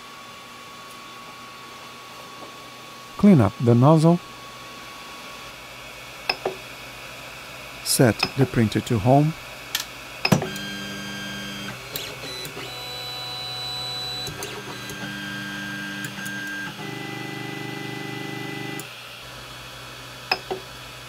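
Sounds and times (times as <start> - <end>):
stepper motors whining: 10.3 - 18.9.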